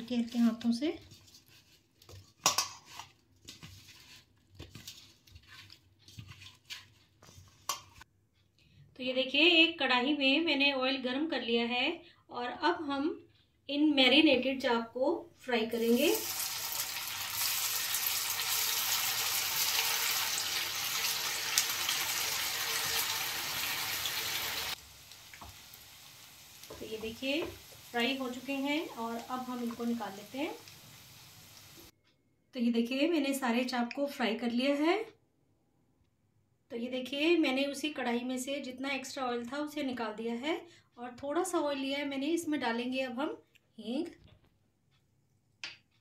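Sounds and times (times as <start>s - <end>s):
deep-frying in hot oil: 15.7s - 31.9s.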